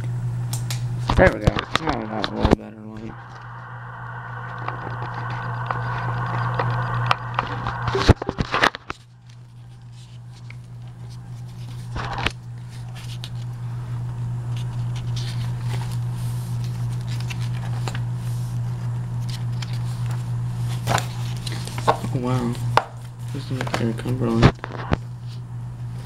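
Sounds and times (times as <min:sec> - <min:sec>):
steady low hum: 0:00.0 - 0:26.0
paper pages rustling: 0:07.7 - 0:13.6, 0:14.5 - 0:25.4.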